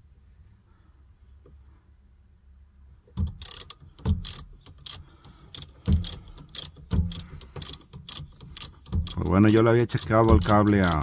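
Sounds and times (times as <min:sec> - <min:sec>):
ratchet wrench clicking: 0:03.2 - 0:11.0.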